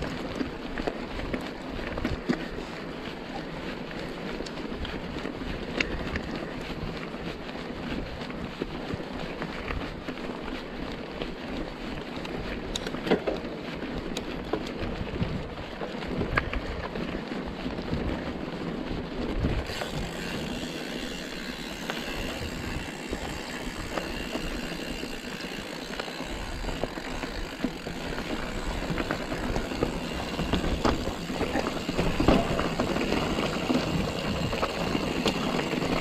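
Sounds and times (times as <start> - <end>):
bike tyres on stony track: 0.0 - 36.0
stones and bike rattling: 0.0 - 36.0
wind on microphone: 19.2 - 25.3.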